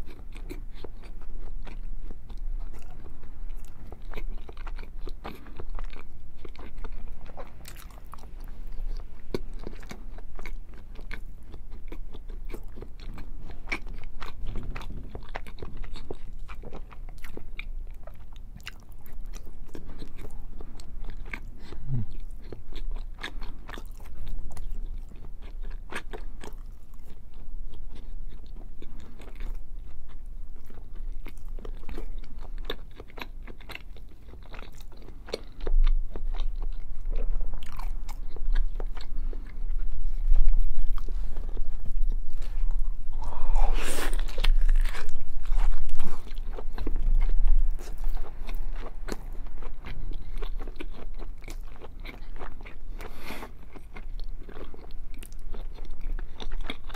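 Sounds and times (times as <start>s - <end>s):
close-miked chewing: 0.0s - 56.9s
low rumble: 39.5s - 50.8s.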